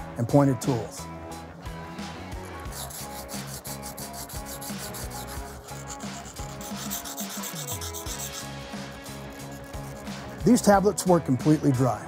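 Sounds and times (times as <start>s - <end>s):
steel tool rasping on sharpening plate: 2.4s - 10.4s.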